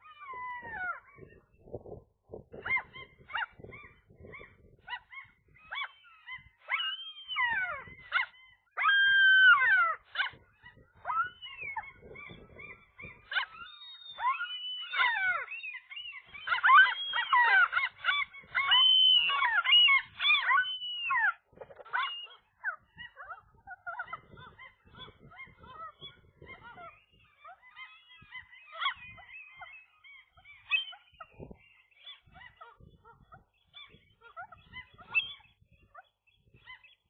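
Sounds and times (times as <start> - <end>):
gulls calling: 2.6 - 37.0.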